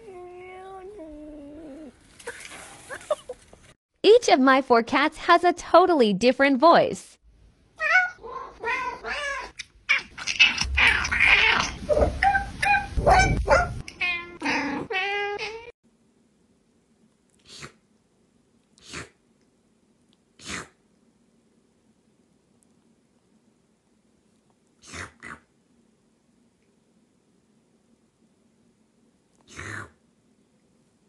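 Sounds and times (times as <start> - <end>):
cats meowing: 7.8 - 13.0.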